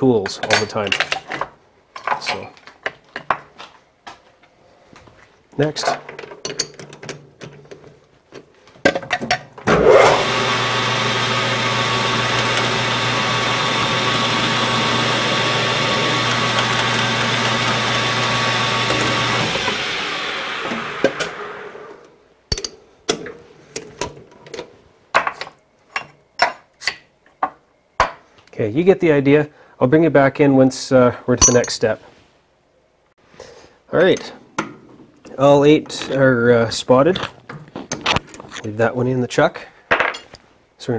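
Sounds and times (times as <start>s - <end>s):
lathe spinning down: 9.7s - 22.1s
metal lathe running: 9.8s - 22.0s.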